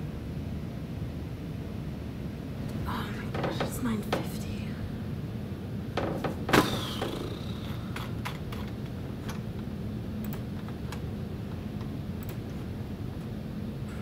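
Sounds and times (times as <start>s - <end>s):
steady low hum: 0.0s - 14.0s
loud knock: 6.0s - 8.1s.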